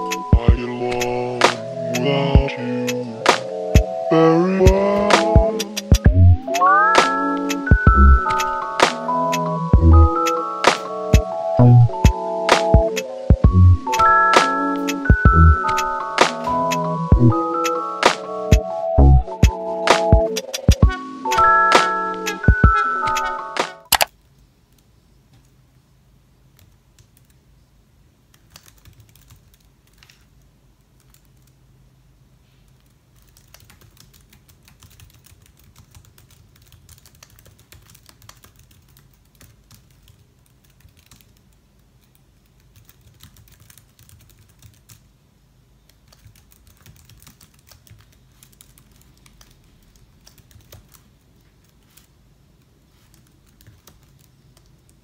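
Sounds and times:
laptop keyboard typing: 0.0 - 3.9, 4.6 - 24.1, 26.4 - 27.4, 28.3 - 31.6, 32.7 - 45.1, 45.8 - 55.0.

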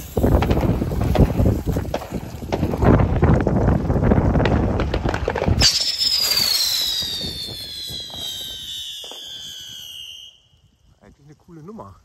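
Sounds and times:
spinning firework whistling: 0.0 - 2.8, 5.3 - 10.9.

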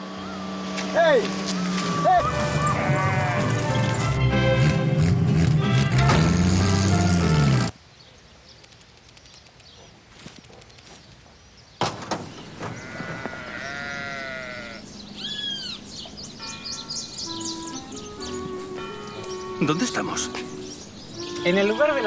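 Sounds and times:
long animal call: 12.8 - 15.8.

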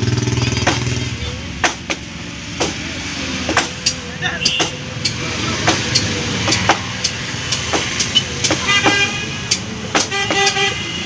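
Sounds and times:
traffic rumble: 0.0 - 11.0
vehicle horn: 8.6 - 11.0.

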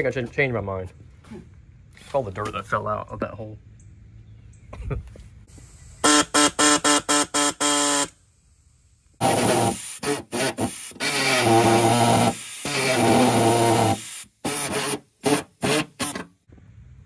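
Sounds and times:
pneumatic saw cutting sheet metal: 6.0 - 8.1, 9.2 - 16.3.

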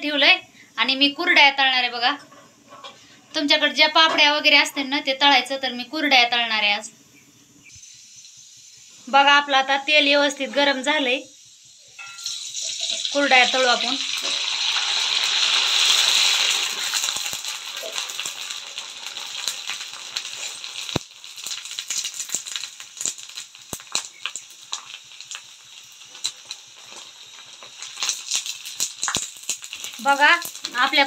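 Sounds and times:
food deep-frying in hot oil: 7.6 - 31.0.

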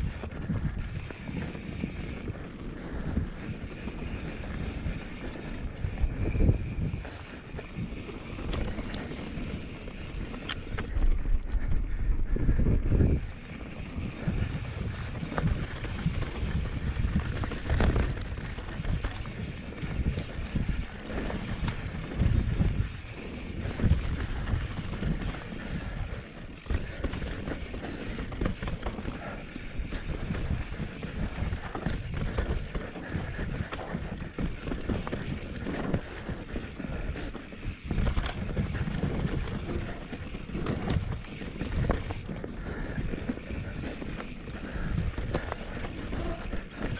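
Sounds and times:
bike knocking and rattling: 0.0 - 46.9
wind buffeting microphone: 0.0 - 46.9
tyres rumbling on dirt: 12.4 - 46.9.

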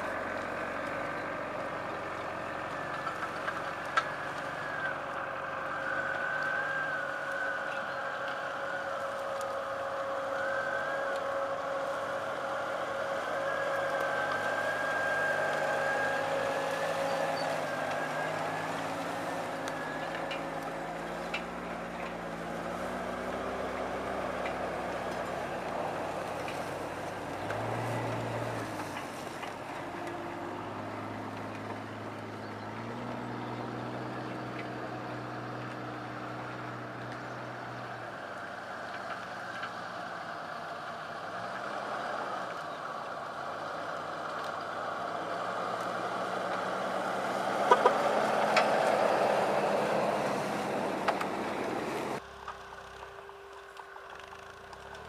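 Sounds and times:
off-road engines at low revs: 0.0 - 55.0.

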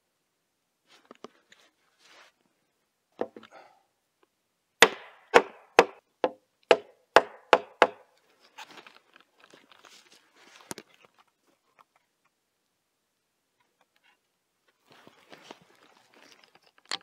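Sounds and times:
rustling and scraping: 0.8 - 2.6, 8.2 - 12.1, 13.6 - 17.0
hammer knocking wooden post: 4.8 - 8.0.

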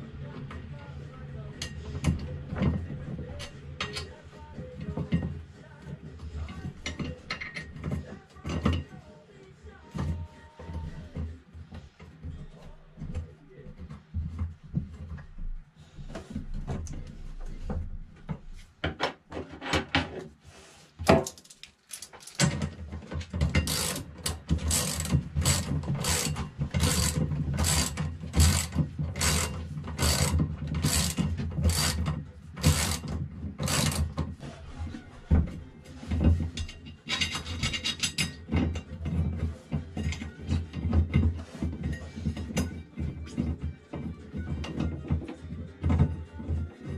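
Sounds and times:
ratchet wrench strokes: 23.6 - 34.1.

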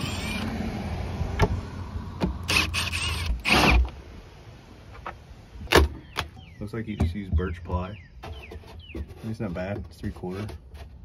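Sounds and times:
cordless drill whirring: 0.0 - 0.5, 2.4 - 3.8.

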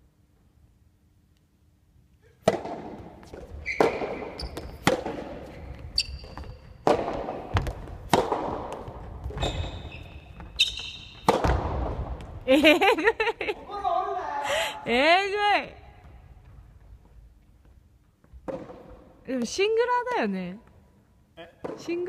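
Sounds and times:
tennis ball hitting rackets: 2.4 - 5.7, 6.8 - 9.6, 10.4 - 12.3, 18.4 - 19.1
ball bouncing on wooden floor: 2.4 - 12.4, 16.0 - 20.8
shoe squeaks on floor: 3.5 - 4.8, 5.5 - 6.8, 9.2 - 11.3.

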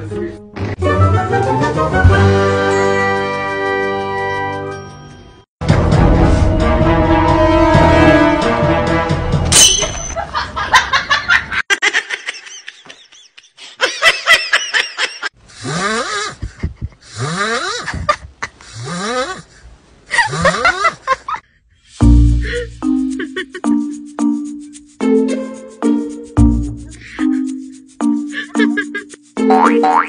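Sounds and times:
person laughing: 10.2 - 19.4, 20.1 - 21.4, 22.4 - 23.9, 26.9 - 27.5, 28.3 - 30.0.

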